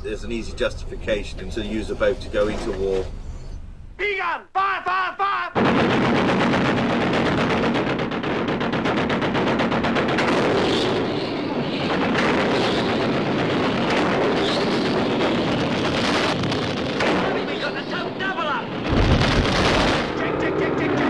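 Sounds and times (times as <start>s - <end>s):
rapid automatic gunfire: 5.6s - 20.2s.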